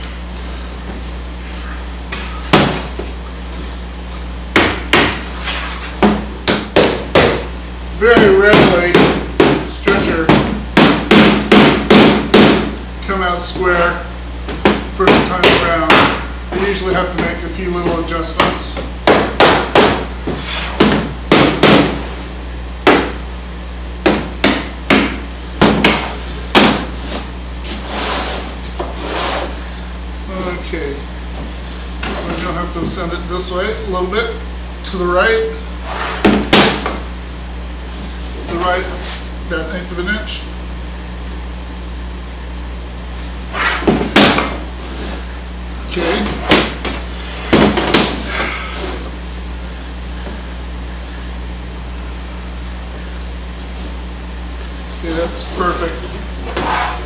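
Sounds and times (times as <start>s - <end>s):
steady low hum: 0.0s - 57.0s
hammer knocking wooden frame: 4.5s - 5.2s, 6.0s - 7.5s, 8.1s - 12.7s, 14.6s - 16.3s, 17.1s - 20.1s, 20.8s - 22.0s, 22.8s - 23.2s, 24.0s - 26.9s, 36.2s - 37.0s.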